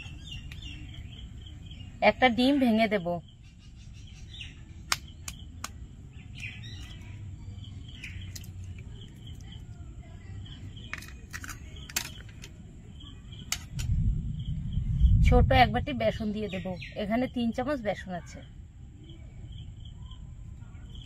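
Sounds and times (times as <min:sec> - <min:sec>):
small birds chirping: 0:00.0 - 0:21.0
kitchen clicks and knocks: 0:10.8 - 0:12.6, 0:13.4 - 0:13.9
low background rumble: 0:11.7 - 0:21.0.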